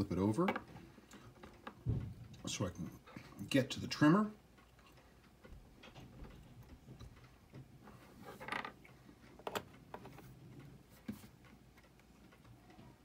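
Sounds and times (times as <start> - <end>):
small metal clicks and clatter: 5.8 - 7.3.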